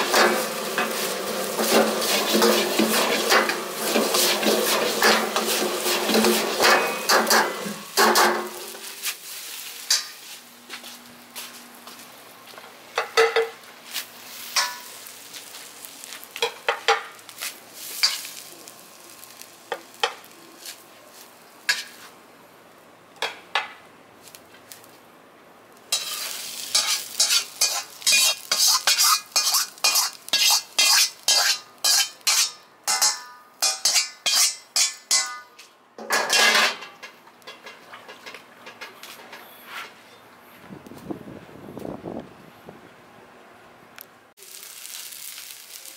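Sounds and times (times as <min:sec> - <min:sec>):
metal ladle scraping a wok: 0:00.0 - 0:09.0, 0:25.9 - 0:35.5
steady hiss: 0:00.0 - 0:12.9, 0:13.6 - 0:22.8, 0:24.1 - 0:33.1, 0:44.4 - 0:45.9
rice sizzling in a wok: 0:00.0 - 0:22.2, 0:24.2 - 0:25.0, 0:25.7 - 0:35.0, 0:44.4 - 0:45.9.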